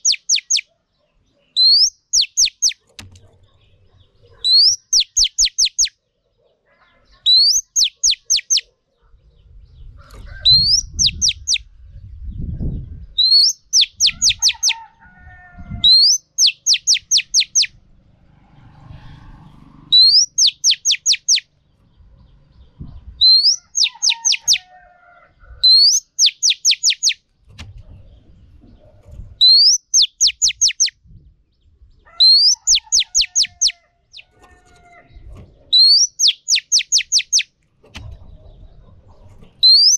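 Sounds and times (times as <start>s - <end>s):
bird calling with whistles: 0.0s - 0.7s, 1.6s - 2.8s, 4.4s - 5.9s, 7.3s - 8.7s, 10.5s - 11.7s, 13.2s - 14.8s, 15.8s - 17.8s, 19.9s - 21.5s, 23.2s - 24.6s, 25.6s - 27.2s, 29.4s - 31.0s, 32.2s - 34.3s, 35.7s - 37.5s, 39.6s - 39.9s.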